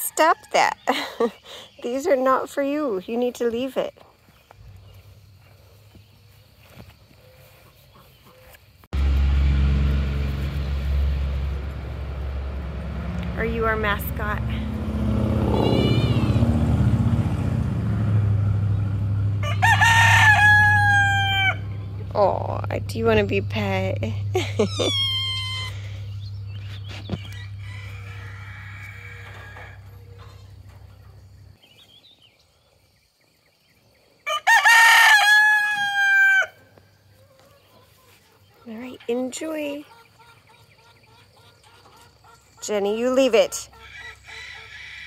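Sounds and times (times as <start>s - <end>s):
steady low rumble: 8.9s - 31.6s
rooster crowing: 15.2s - 16.7s, 19.3s - 22.1s, 24.6s - 30.7s, 34.2s - 36.7s, 43.8s - 45.0s
kitten meowing: 15.6s - 16.4s.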